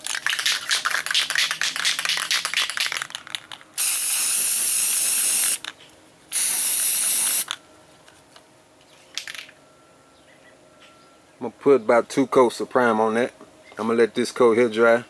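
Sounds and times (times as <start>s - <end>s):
spray can ball rattling: 0.0s - 5.7s, 6.3s - 7.6s
spray can hissing: 3.8s - 5.6s, 6.3s - 7.5s.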